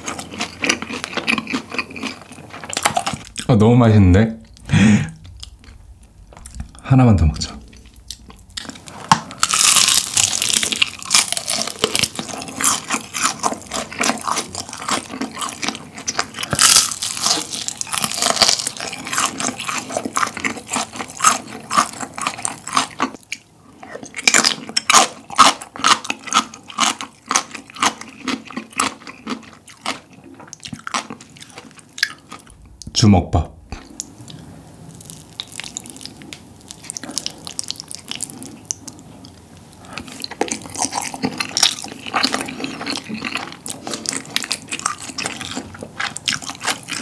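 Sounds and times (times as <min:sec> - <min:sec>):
crunchy chewing: 0:00.0 - 0:03.5, 0:07.4 - 0:32.6, 0:33.8 - 0:47.0.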